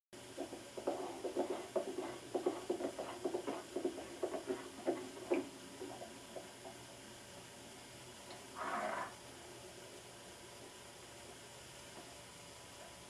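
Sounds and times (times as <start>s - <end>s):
horse hoofbeats on dirt: 0.3s - 6.9s.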